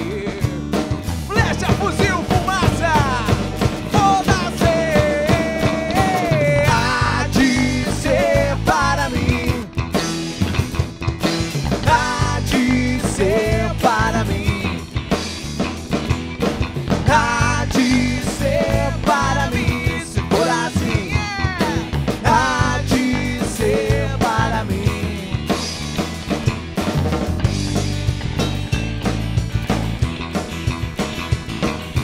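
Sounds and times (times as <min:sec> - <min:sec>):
singer belting wordless vocals: 0:00.0 - 0:10.2, 0:11.7 - 0:15.2, 0:17.0 - 0:26.0
rock band playing live: 0:00.0 - 0:32.0.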